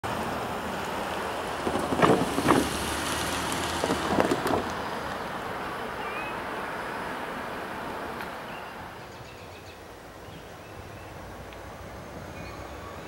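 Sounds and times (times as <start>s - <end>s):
steady outdoor noise: 0.0s - 13.0s
clusters of knocks: 3.5s - 4.8s.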